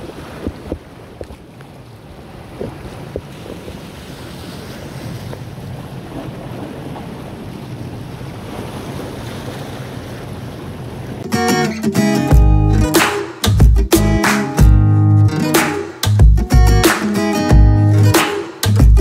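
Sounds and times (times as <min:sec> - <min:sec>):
wind buffeting microphone: 0:00.0 - 0:11.2
small waves washing: 0:00.0 - 0:11.3
strummed guitar music: 0:11.2 - 0:19.0.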